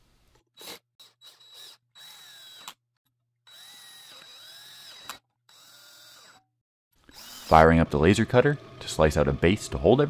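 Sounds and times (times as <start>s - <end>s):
cordless drill motor whine: 1.0s - 2.8s, 3.5s - 6.4s, 7.1s - 10.0s.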